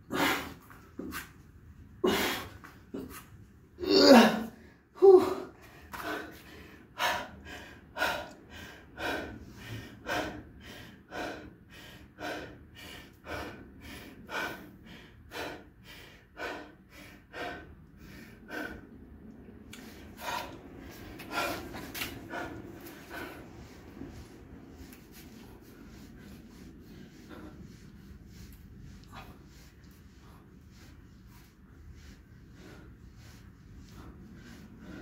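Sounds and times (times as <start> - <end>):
man panting hard: 5.0 - 19.0, 19.8 - 35.0.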